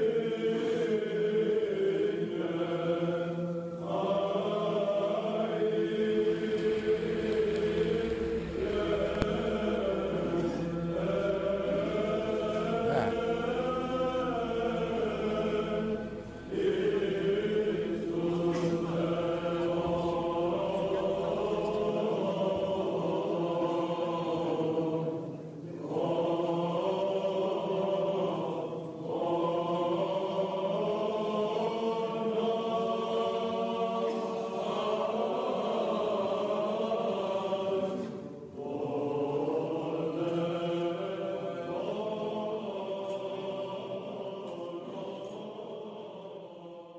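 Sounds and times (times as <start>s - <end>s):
choir chanting: 0.0s - 46.9s
held drone note: 6.6s - 22.0s.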